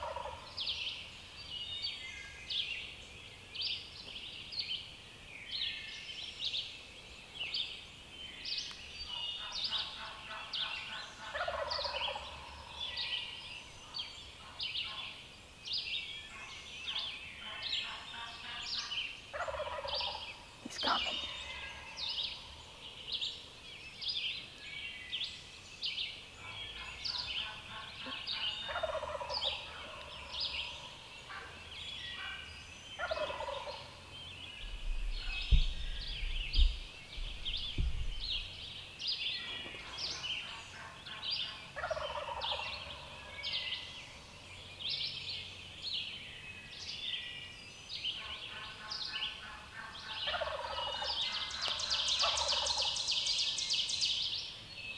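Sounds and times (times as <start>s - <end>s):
turkeys gobbling: 0.0s - 0.4s, 11.2s - 12.7s, 19.3s - 21.9s, 27.2s - 31.5s, 33.0s - 34.0s, 41.8s - 43.2s, 48.2s - 53.0s
songbirds chirping: 0.0s - 54.9s
low thumps: 34.6s - 38.6s.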